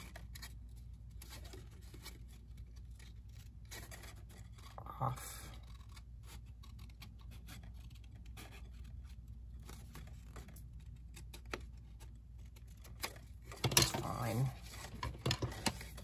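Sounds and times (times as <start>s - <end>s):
paper rubbing: 0.0s - 16.0s.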